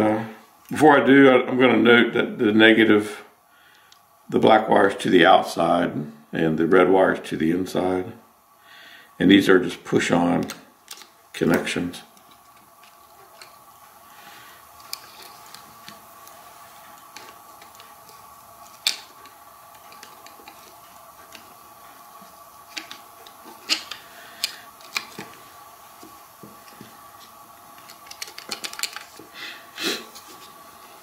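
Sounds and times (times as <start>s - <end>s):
faint steady hum: 0.0s - 31.0s
connectors clicking off: 14.8s - 25.4s, 26.0s - 29.3s.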